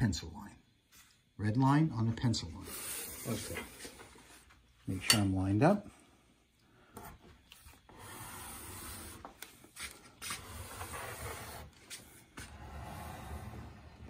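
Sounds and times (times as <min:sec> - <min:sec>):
blade scraping through board: 0:09.8 - 0:14.0.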